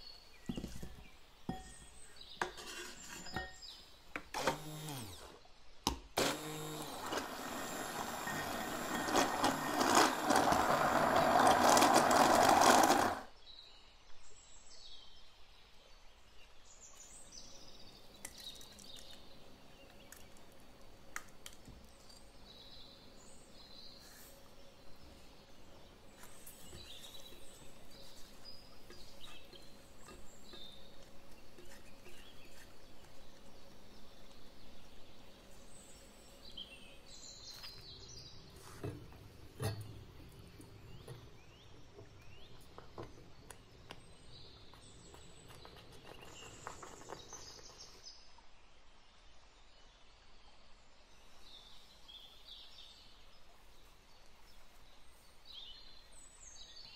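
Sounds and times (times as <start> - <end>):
whisk scraping metal saucepan: 2.4 - 3.5
immersion blender running: 4.3 - 5.4, 6.2 - 13.3.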